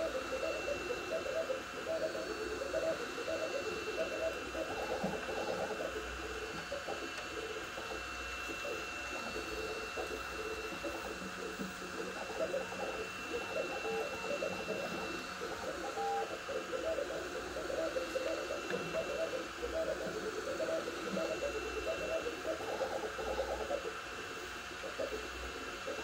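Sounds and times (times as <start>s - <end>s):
faint high whine: 0.0s - 26.0s
fans hissing: 0.0s - 26.0s
stepper motors singing: 0.0s - 26.0s.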